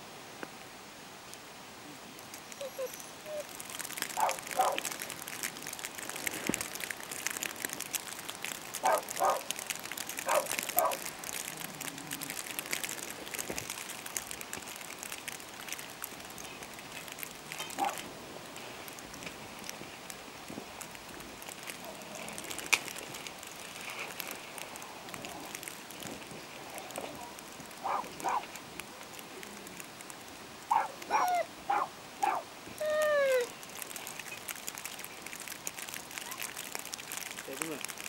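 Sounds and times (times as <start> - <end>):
crackle of small clicks: 2.1 - 38.0
dog barking: 4.2 - 4.8, 8.8 - 9.4, 10.2 - 11.0, 27.8 - 28.4, 30.7 - 32.4.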